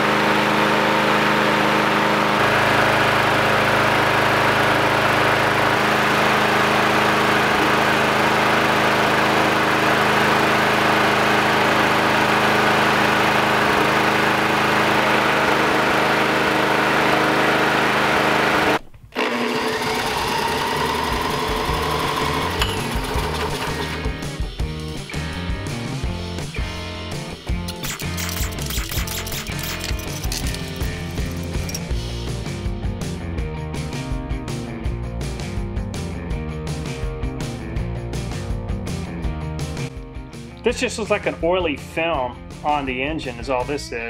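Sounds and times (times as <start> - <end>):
lawnmower engine running: 0.0 - 32.6
background music: 20.5 - 44.0.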